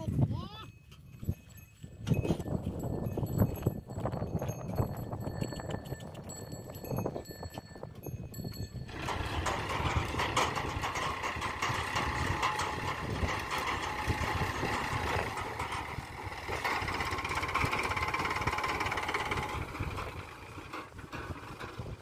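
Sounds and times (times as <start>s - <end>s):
diesel engines running: 8.6s - 22.0s.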